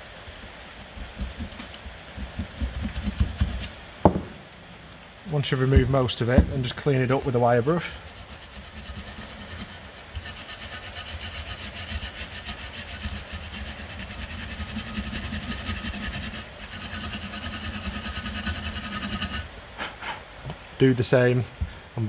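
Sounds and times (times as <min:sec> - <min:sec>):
wire brush scrubbing metal: 0:00.8 - 0:03.8, 0:05.3 - 0:19.5.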